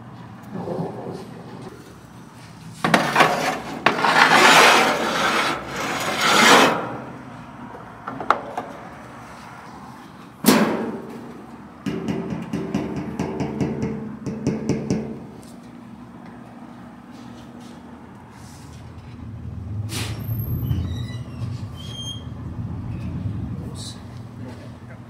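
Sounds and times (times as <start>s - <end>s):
rough scraping and rubbing: 2.8s - 7.0s.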